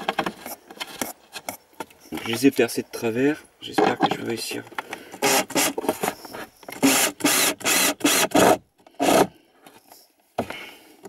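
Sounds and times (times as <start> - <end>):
cordless drill driving a screw: 5.2 - 5.8, 6.8 - 9.3.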